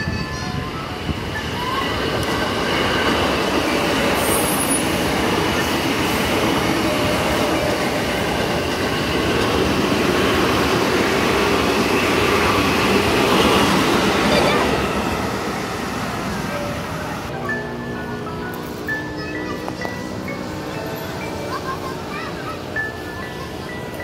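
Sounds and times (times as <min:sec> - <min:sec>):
train wheels rumbling on rail: 0:00.0 - 0:17.3.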